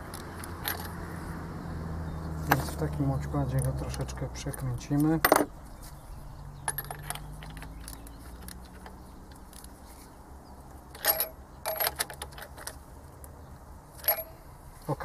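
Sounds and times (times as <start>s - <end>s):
metal tools clinking: 0.0s - 1.0s, 6.6s - 9.8s, 10.9s - 12.8s, 14.0s - 14.5s.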